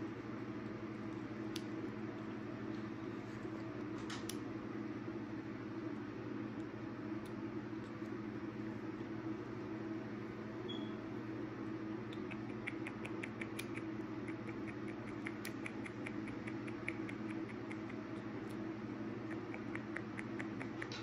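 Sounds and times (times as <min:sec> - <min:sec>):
steady low hum: 0:00.0 - 0:21.0
ferret clicking chirps: 0:12.1 - 0:18.6, 0:19.2 - 0:21.0.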